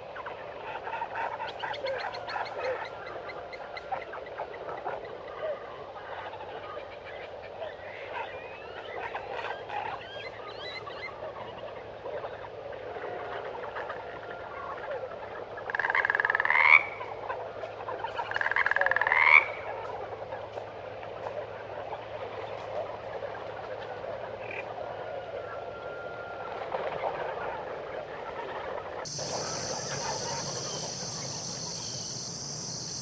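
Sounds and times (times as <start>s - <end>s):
chorus of frogs croaking: 0.1s - 10.4s, 11.3s - 20.3s, 20.9s - 33.0s
loud pulsed frog calls rising: 29.1s - 33.0s.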